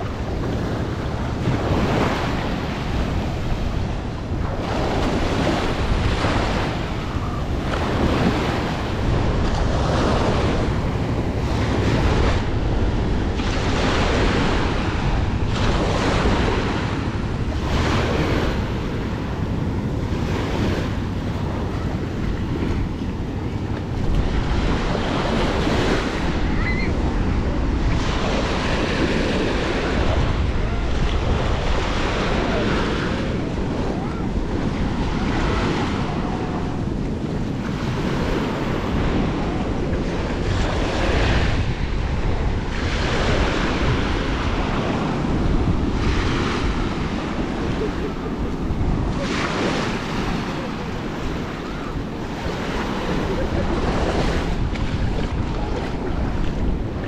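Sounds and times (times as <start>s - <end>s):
small waves washing on shore: 0.0s - 57.0s
wind rumbling on microphone: 0.0s - 57.0s.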